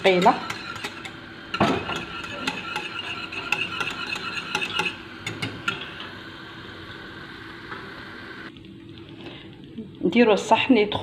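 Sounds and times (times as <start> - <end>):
whisk clicking against saucepan: 0.0 - 5.8.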